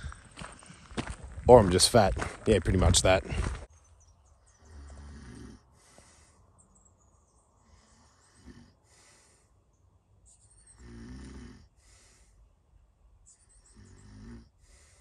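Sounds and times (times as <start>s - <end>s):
man snoring: 4.6s - 6.0s, 7.7s - 9.3s, 10.7s - 12.3s, 13.7s - 15.0s.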